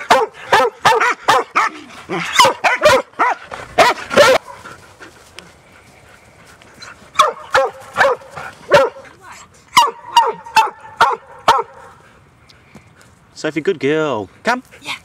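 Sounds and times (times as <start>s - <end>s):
dog barking loudly: 0.0s - 4.6s, 7.1s - 9.1s, 9.7s - 12.0s.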